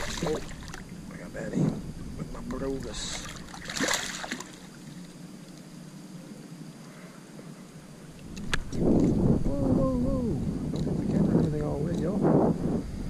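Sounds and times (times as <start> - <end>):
fish splashing at water surface: 3.1 - 4.9.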